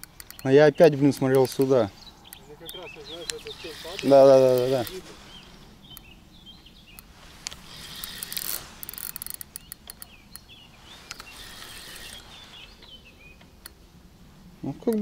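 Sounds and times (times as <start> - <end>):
fishing reel clicking: 0.0 - 5.0, 7.0 - 12.2.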